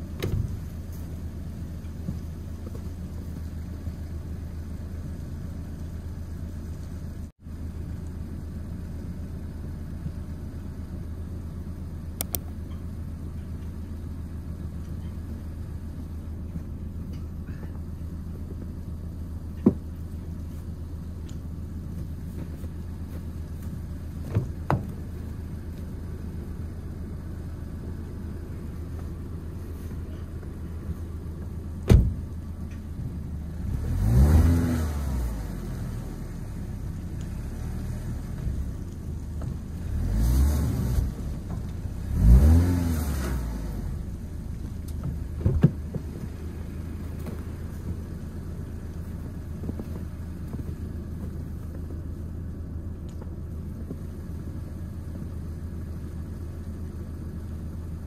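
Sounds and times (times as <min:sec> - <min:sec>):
car engine idling: 0:00.0 - 0:58.0
car door shutting: 0:00.1 - 0:00.8, 0:31.4 - 0:32.9, 0:44.9 - 0:46.2
engine revving: 0:33.4 - 0:44.2.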